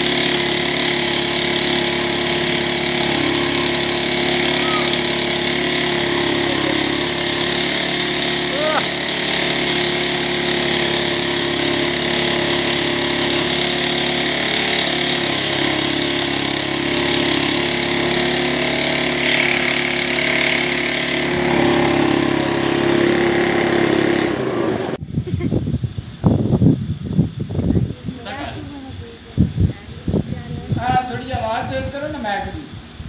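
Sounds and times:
small motorcycle engine running: 0:00.0 - 0:25.0.

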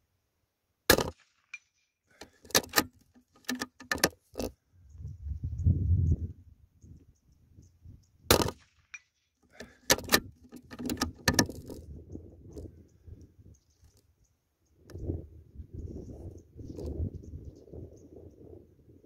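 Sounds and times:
rifle shot: 0:00.9 - 0:01.6, 0:08.3 - 0:08.9
sharp metallic clicks: 0:00.9 - 0:04.5, 0:08.3 - 0:12.7.

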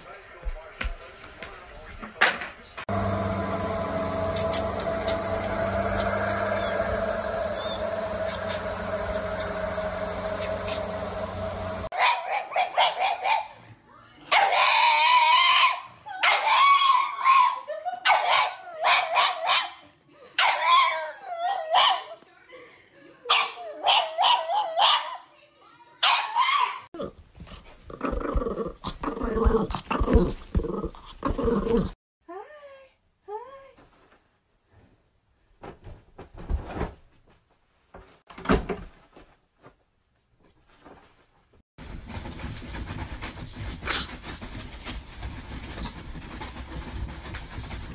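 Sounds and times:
dog howling and yowling: 0:14.5 - 0:17.6.

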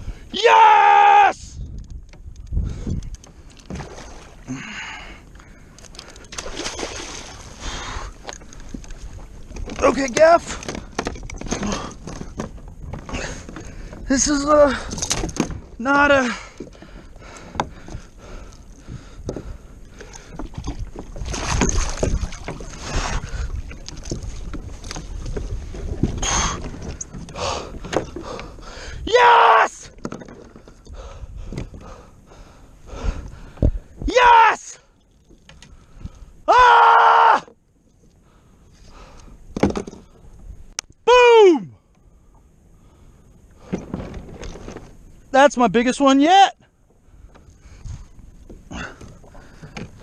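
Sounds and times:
fish thrashing in water: 0:06.2 - 0:08.2, 0:20.2 - 0:27.0
knocks against kayak hull: 0:39.5 - 0:40.0.

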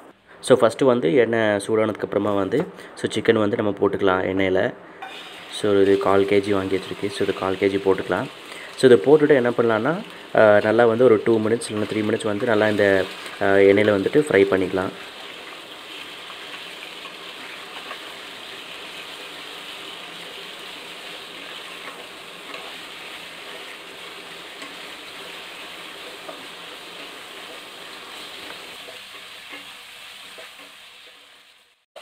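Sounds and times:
chicken sizzling in hot oil: 0:05.0 - 0:32.0
wooden spatula stirring: 0:15.1 - 0:31.3.

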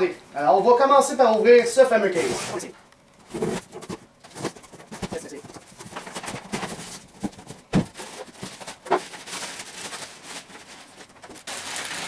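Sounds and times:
cardboard and styrofoam rustling: 0:02.1 - 0:12.0
box knocks: 0:06.5 - 0:08.0.

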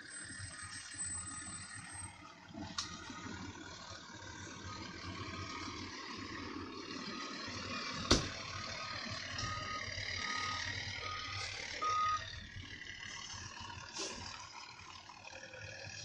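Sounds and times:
truck engine running: 0:00.0 - 0:16.0
backup alarm beeping: 0:09.4 - 0:12.3.

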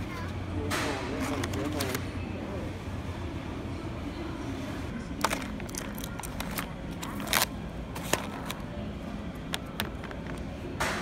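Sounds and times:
plastic packaging crinkling: 0:05.2 - 0:08.6.

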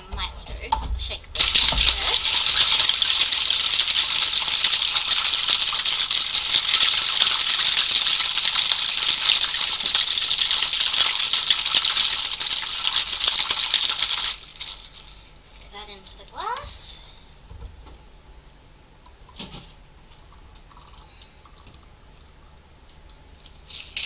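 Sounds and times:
ice rattling in cocktail shaker: 0:01.4 - 0:15.2, 0:23.4 - 0:24.0.

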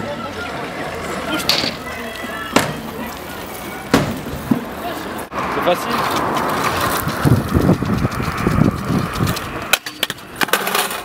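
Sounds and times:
scooter wheels rolling on asphalt: 0:00.0 - 0:11.0
scooter clattering onto ground: 0:01.4 - 0:01.9, 0:09.2 - 0:11.0.

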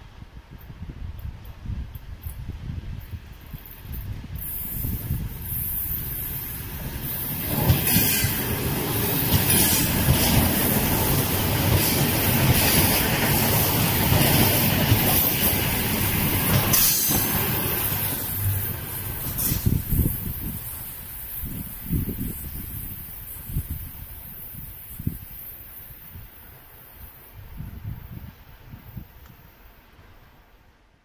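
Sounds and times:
train wheels on rails: 0:00.5 - 0:30.3.

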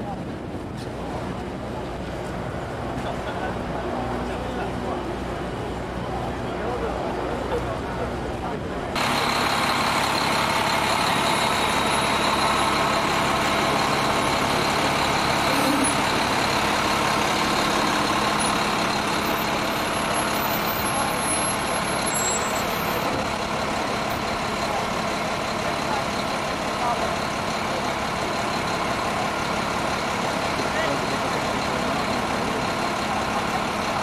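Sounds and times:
truck engines idling: 0:00.0 - 0:34.0.

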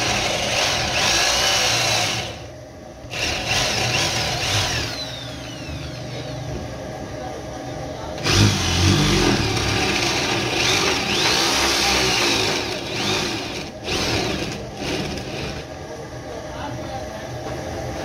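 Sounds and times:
drill bit boring into wood: 0:00.0 - 0:02.4, 0:03.1 - 0:06.2, 0:08.2 - 0:15.6
drill press motor running: 0:00.0 - 0:06.5, 0:08.2 - 0:15.8.

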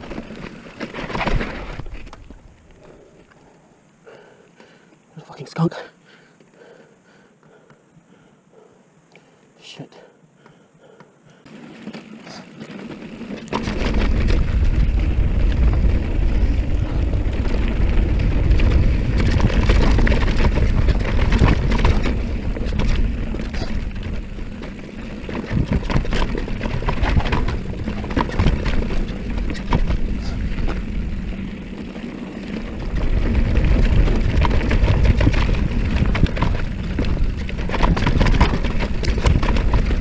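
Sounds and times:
bike knocking and rattling: 0:00.0 - 0:02.5, 0:10.5 - 0:40.0
wind rushing over microphone: 0:13.6 - 0:24.6.

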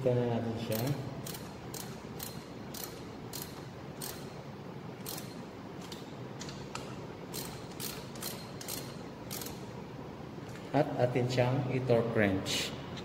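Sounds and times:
ratchet wrench clicking: 0:00.7 - 0:04.4, 0:05.0 - 0:09.6.

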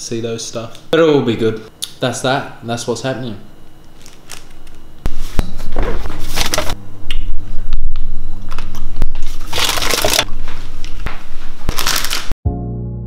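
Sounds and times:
paper and plastic bags crinkling: 0:09.2 - 0:11.0, 0:11.6 - 0:12.4.

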